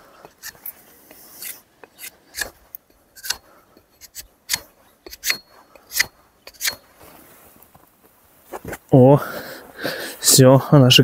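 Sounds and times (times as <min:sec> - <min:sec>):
hatchet chopping wooden stick: 0:01.4 - 0:02.6, 0:03.2 - 0:03.4, 0:04.1 - 0:06.8.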